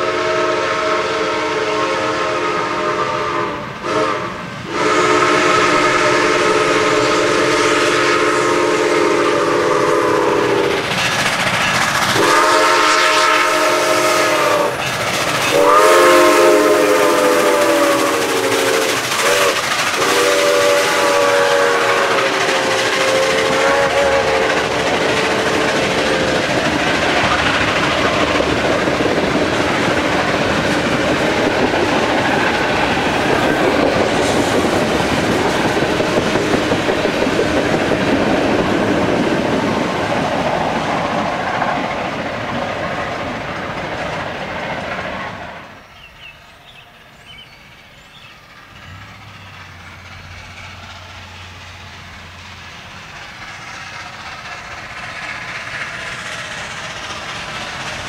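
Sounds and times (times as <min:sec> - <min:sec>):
steam locomotive whistle: 0:00.0 - 0:10.8, 0:12.1 - 0:28.5
train wheels clattering on rails: 0:00.0 - 0:58.0.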